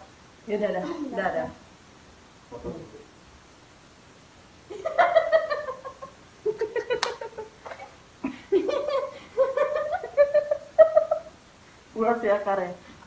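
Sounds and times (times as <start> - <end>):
woman laughing: 0.8 - 1.4, 4.7 - 11.4.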